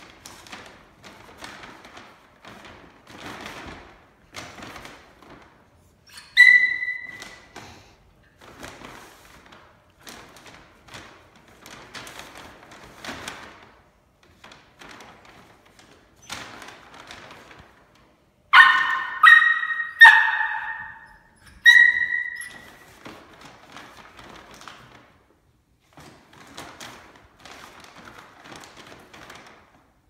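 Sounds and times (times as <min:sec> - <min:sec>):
puppy yapping: 0:06.1 - 0:07.5, 0:18.5 - 0:22.8
paper bag crinkling: 0:25.8 - 0:29.9.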